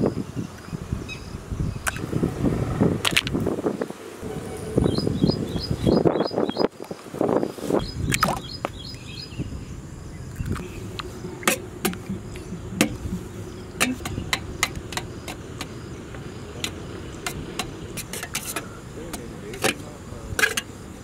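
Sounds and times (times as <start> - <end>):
birds chirping: 0.0 - 21.0
knife clinking in metal bowl: 17.3 - 20.7.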